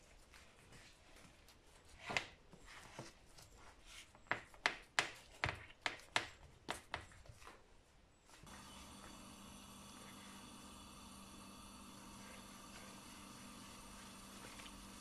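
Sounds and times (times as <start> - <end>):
spatula tapping in a tray: 4.3 - 7.2.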